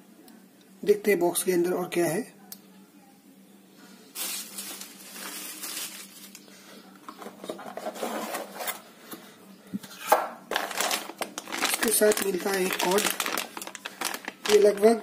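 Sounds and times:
cardboard rustling and scraping: 7.2s - 8.8s.

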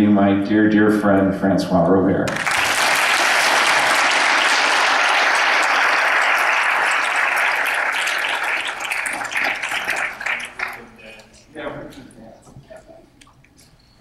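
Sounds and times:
audience applauding: 2.3s - 11.3s.

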